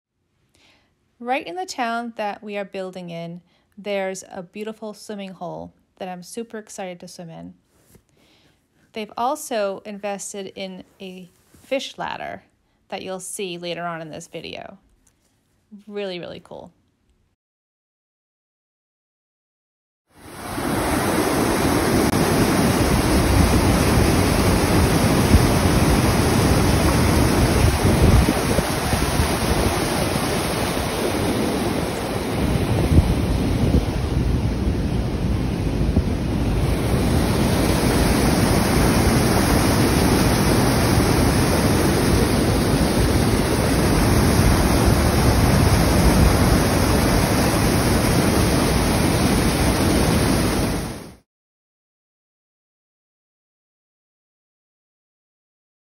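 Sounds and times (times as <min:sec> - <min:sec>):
water roaring over dam spillway: 0:20.2 - 0:51.1
wind buffeting microphone: 0:20.8 - 0:51.0.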